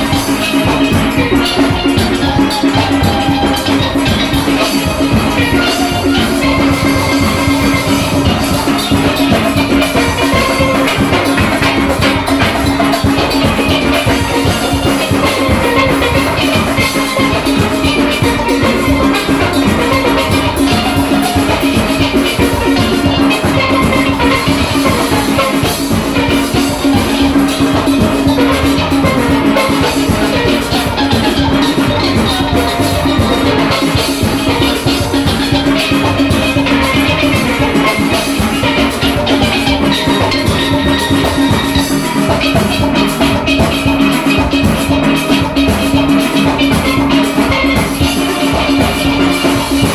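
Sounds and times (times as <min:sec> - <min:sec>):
drums: 0:00.0 - 0:49.9
steel orchestra playing: 0:00.0 - 0:49.9.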